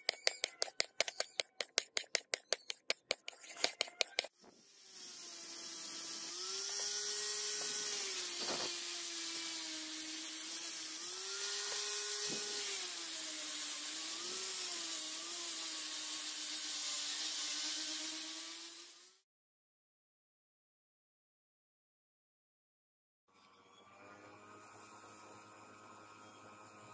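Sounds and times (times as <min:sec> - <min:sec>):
angle grinder grinding metal: 0:00.0 - 0:19.2.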